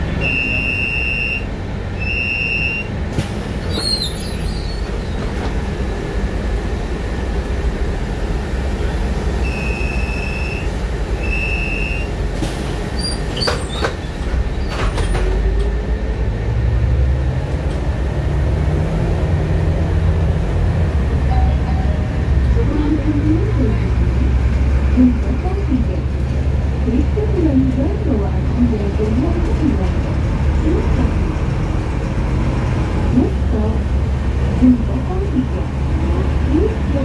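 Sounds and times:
bus engine rumble: 0.0 - 37.0
bus door chime beeps: 0.2 - 3.0, 9.4 - 12.2, 21.3 - 22.1.

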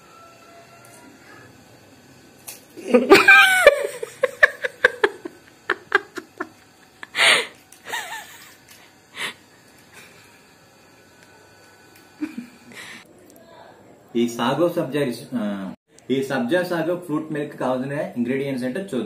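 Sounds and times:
man laughing: 2.8 - 8.6, 12.2 - 12.7.

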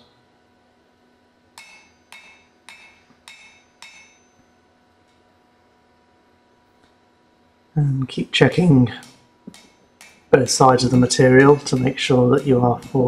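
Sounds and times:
hammer blows on hot steel: 7.8 - 13.0.

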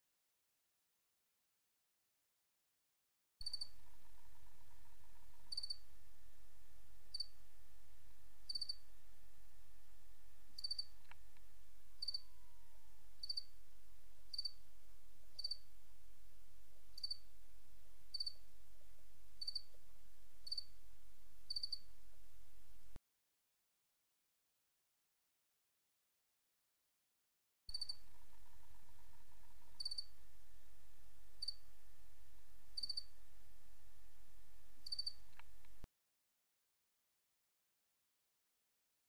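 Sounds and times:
cricket chirping: 3.4 - 5.9, 7.1 - 7.4, 8.5 - 8.8, 10.6 - 11.2, 12.0 - 13.6, 14.3 - 14.6, 15.4 - 15.7, 17.0 - 17.3, 18.1 - 18.4, 19.4 - 19.7, 20.4 - 20.8, 21.5 - 21.9, 27.7 - 30.2, 31.4 - 31.6, 32.8 - 33.1, 34.8 - 35.4
steady low hum: 3.4 - 23.0, 27.7 - 35.9.

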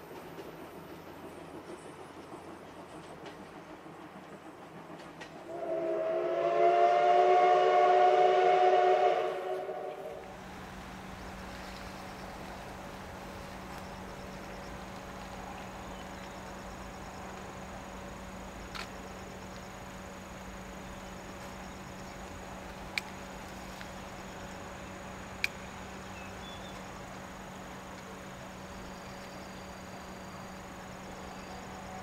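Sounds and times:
faint insect calls: 9.3 - 32.0.

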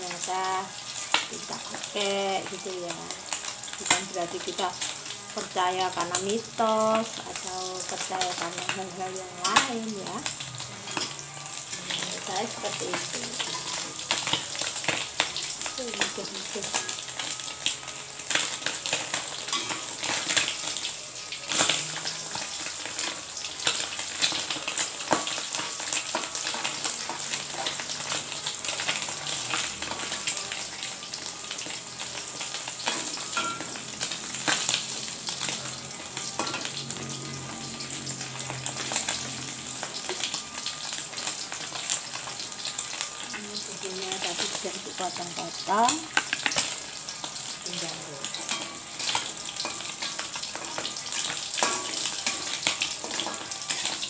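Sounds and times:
fish sizzling in hot oil: 0.0 - 54.0
metal spatula scraping a wok: 48.3 - 54.0.

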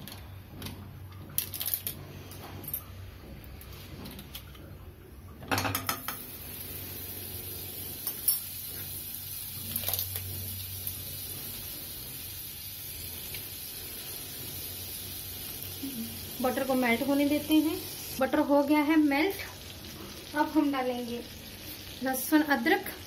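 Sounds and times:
utensils knocking against pan: 5.5 - 6.2
butter sizzling: 5.9 - 23.0.

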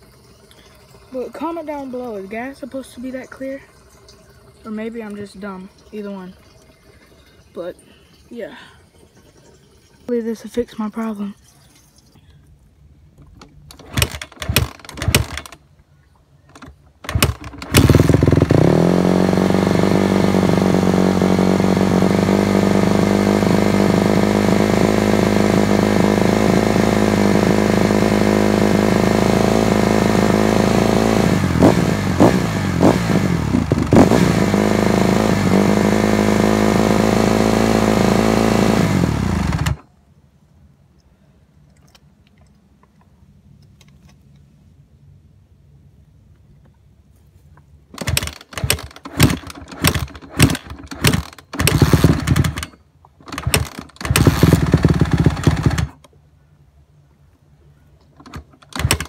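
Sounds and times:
dirt bike engine starting and idling: 13.3 - 15.6, 16.5 - 39.9, 47.9 - 56.1, 58.1 - 59.0.

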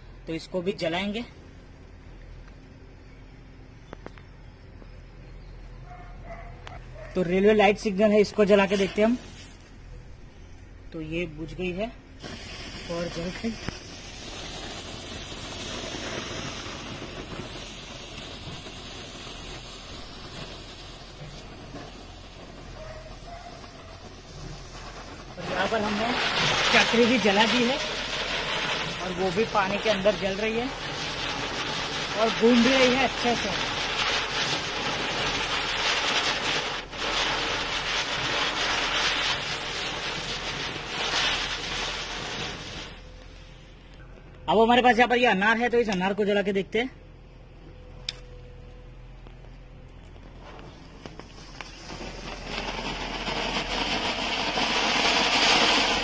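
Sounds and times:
flare firework hissing: 7.6 - 10.6, 11.4 - 44.0, 50.1 - 56.0.

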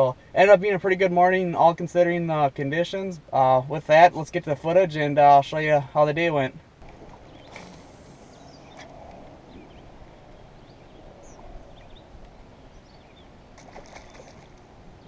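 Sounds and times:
bird chirps: 7.2 - 13.4.

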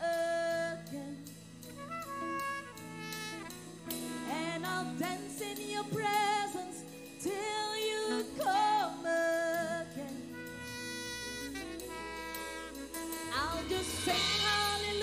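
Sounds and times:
woman singing: 0.0 - 1.4, 4.2 - 12.4, 13.1 - 15.0
instrumental accompaniment: 0.0 - 15.0.

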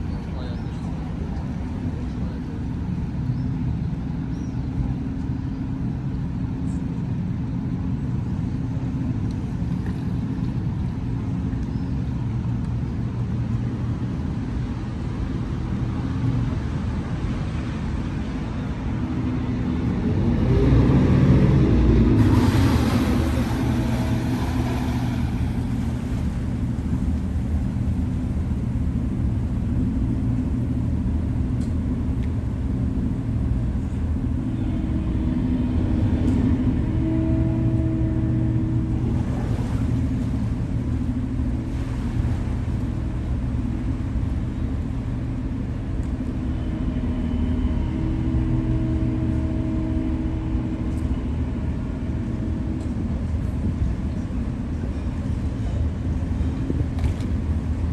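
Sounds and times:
diesel engine low rumble: 0.0 - 57.9
water rushing surge: 19.8 - 29.0, 34.1 - 44.2.

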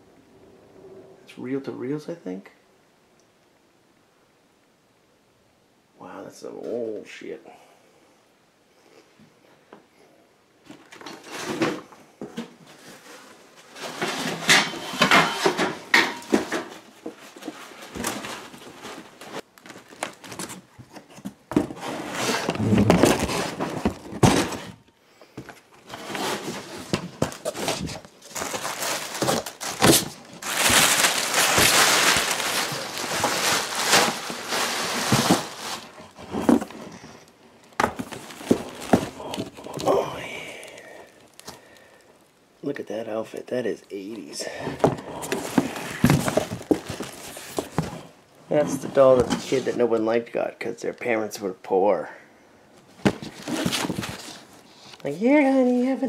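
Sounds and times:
rummaging through cardboard boxes: 10.6 - 41.7, 44.4 - 49.8, 52.8 - 55.8.

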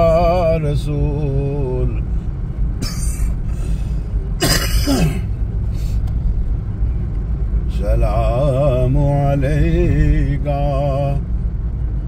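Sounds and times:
car road rumble: 0.0 - 12.0
person coughing: 2.8 - 3.3, 4.4 - 5.3.

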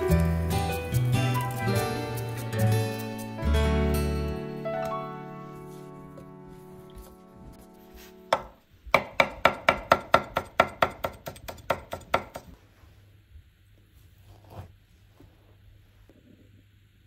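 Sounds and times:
knife chopping on wooden board: 8.3 - 12.5.

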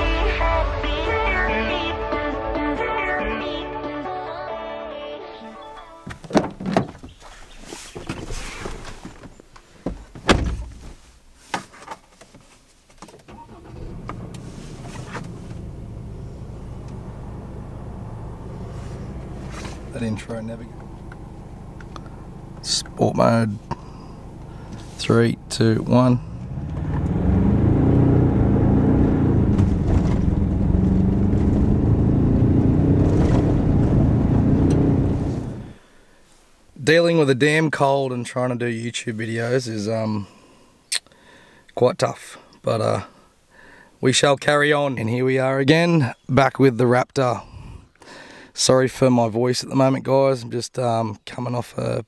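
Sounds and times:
car door shutting thump: 9.9 - 10.8, 29.4 - 30.6
car engine starting and idling: 13.2 - 35.9.

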